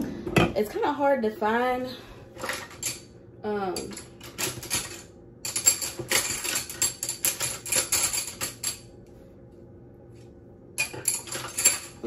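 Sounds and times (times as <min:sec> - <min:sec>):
cutlery clattering and clinking: 0:02.4 - 0:03.0, 0:03.8 - 0:08.8, 0:10.8 - 0:12.0.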